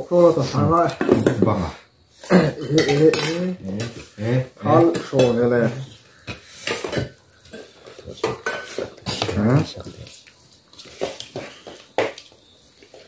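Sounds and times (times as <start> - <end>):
spoons clinking on metal bowls: 2.6 - 9.7.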